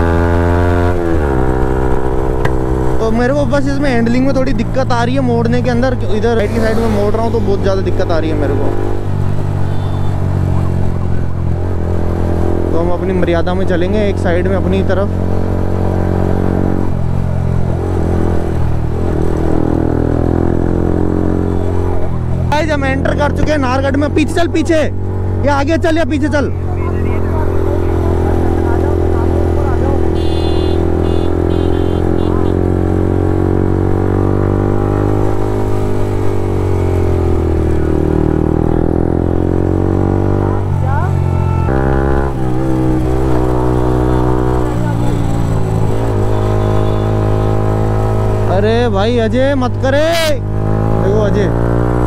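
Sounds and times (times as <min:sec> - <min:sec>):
motorcycle engine running: 0:26.4 - 0:52.0.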